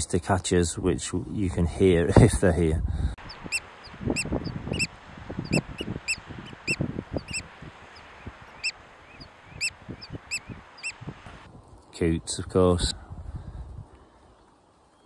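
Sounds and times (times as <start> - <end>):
oystercatcher piping calls: 3.2 - 11.2.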